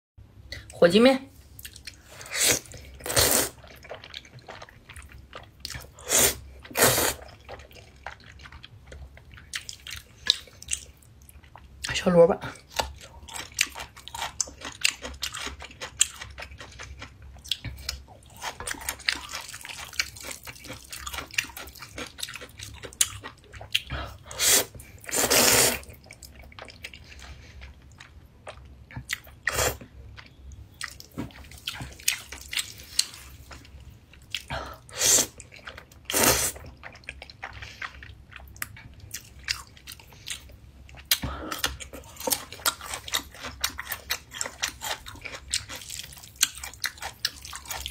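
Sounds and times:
noodle slurping: 24.3s - 25.9s.

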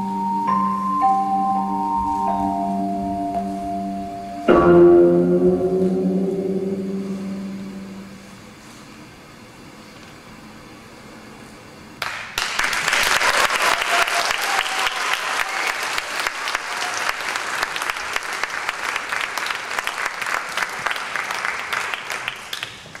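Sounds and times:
audience applauding: 12.0s - 23.0s.

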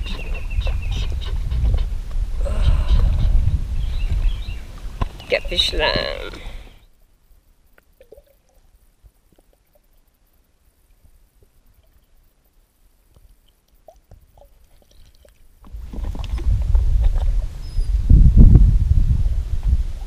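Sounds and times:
wind buffeting microphone: 0.0s - 6.8s, 15.6s - 20.0s.

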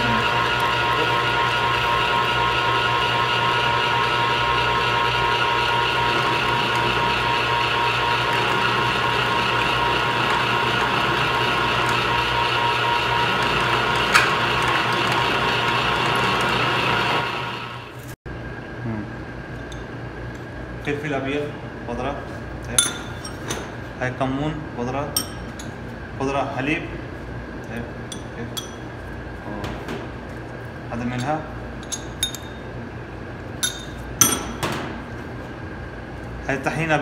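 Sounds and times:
meat grinder motor whining: 0.0s - 18.0s.

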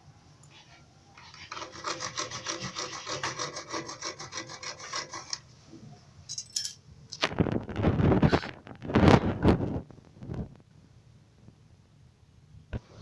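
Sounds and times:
saw cutting plastic pipe: 1.2s - 5.4s.

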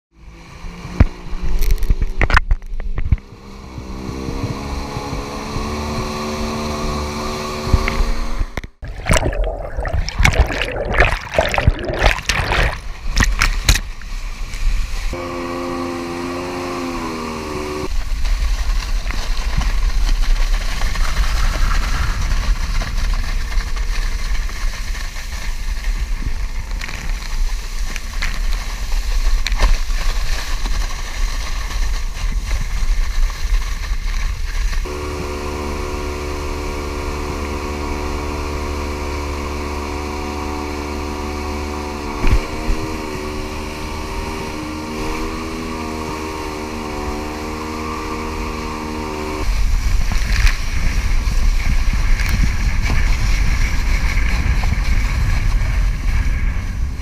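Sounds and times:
jet ski engine winding up: 3.2s - 8.6s, 15.1s - 17.9s, 34.8s - 50.5s
rush of water: 6.1s - 57.0s
heavy water splashing: 8.8s - 23.5s
wind on the microphone: 49.4s - 57.0s.

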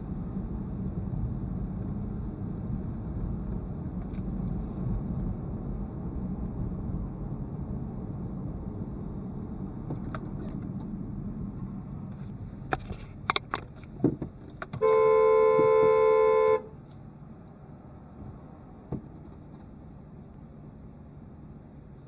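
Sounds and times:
tyre and road rumble: 0.0s - 15.9s, 16.8s - 20.5s
car horn blast: 14.8s - 16.8s.

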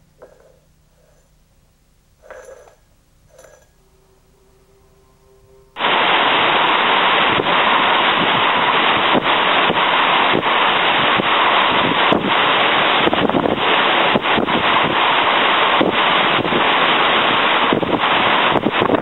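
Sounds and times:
storm wind on microphone: 4.7s - 19.0s.

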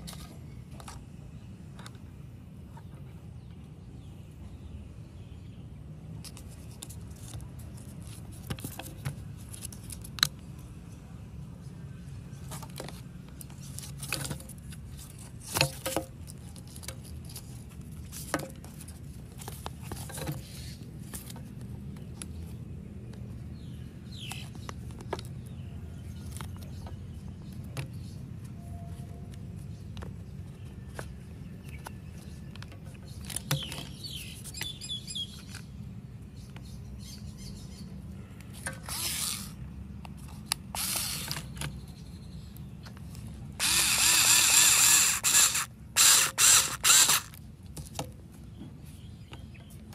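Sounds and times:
birds chirping: 19.7s - 47.4s, 48.3s - 49.9s.

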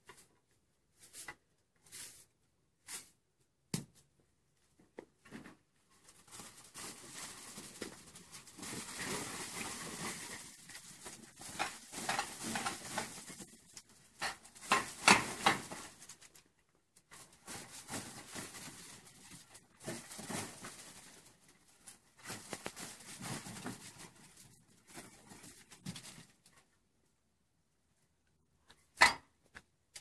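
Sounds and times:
grape bunches rustling: 5.3s - 16.5s, 17.1s - 26.7s.

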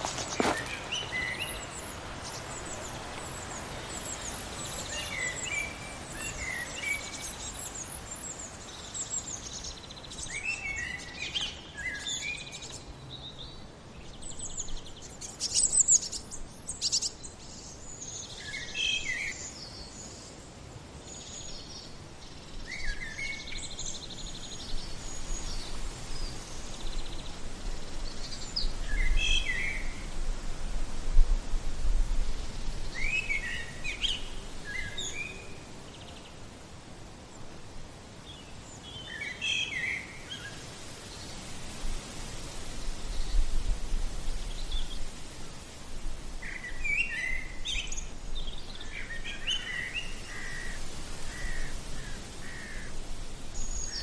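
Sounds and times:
birds chirping: 0.0s - 12.2s.

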